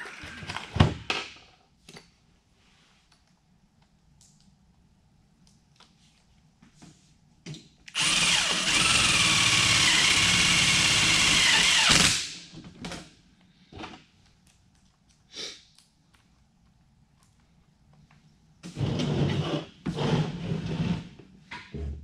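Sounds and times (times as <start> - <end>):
cordless drill driving screw: 7.9 - 12.2.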